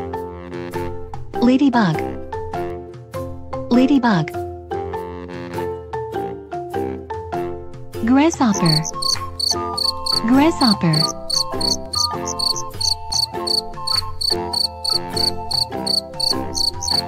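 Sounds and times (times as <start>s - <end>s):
light background music: 0.0s - 17.0s
grasshopper chirping: 8.5s - 17.0s.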